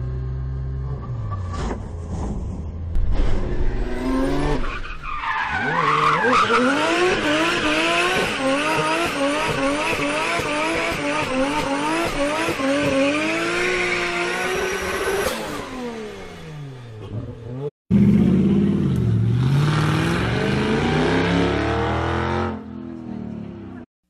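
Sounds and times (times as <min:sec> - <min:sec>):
car engine revving in pulses: 0:05.5 - 0:23.9.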